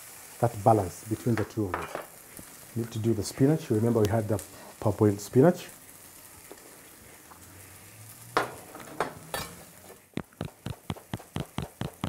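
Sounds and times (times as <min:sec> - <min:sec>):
food sizzling in a pan: 0:00.0 - 0:12.0
knife chopping on plastic board: 0:10.2 - 0:12.0.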